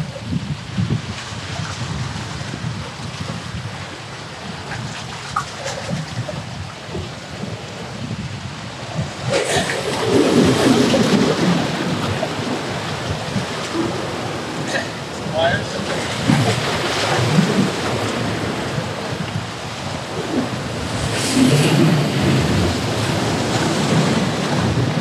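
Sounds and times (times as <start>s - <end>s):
surf washing against rocks: 0.0s - 25.0s
wind rumbling on microphone: 0.0s - 25.0s.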